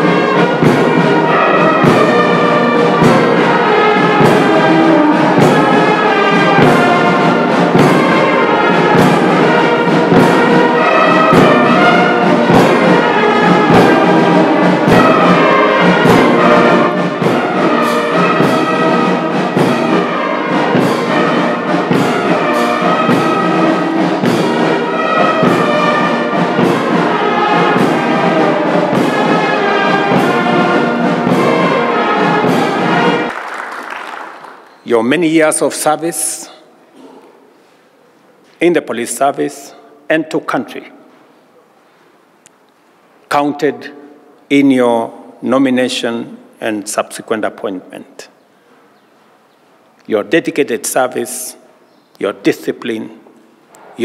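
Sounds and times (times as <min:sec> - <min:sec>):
brass marching band playing: 0:00.0 - 0:37.5.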